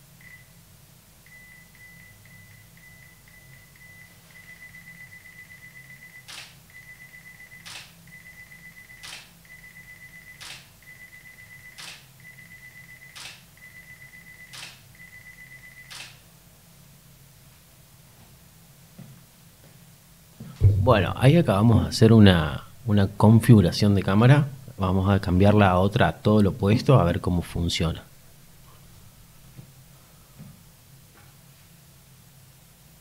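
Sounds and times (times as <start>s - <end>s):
camera self-timer beeps: 0.2s - 0.5s, 1.3s - 16.2s
camera shutter firing: 6.2s - 6.6s, 7.6s - 8.0s, 9.0s - 9.3s, 10.4s - 10.7s, 11.8s - 12.1s, 13.1s - 13.5s, 14.5s - 14.8s, 15.9s - 16.2s.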